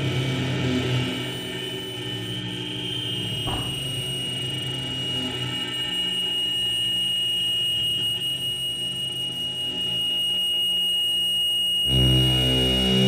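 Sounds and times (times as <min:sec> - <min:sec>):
low droning hum: 0:00.0 - 0:06.0
buzzing low drone: 0:00.0 - 0:10.3, 0:11.7 - 0:13.0
high whistle-like electronic tone: 0:00.2 - 0:13.0.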